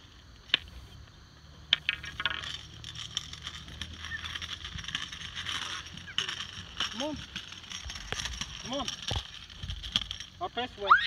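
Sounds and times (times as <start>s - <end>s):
cane tip sweeping pavement: 0.0s - 11.0s.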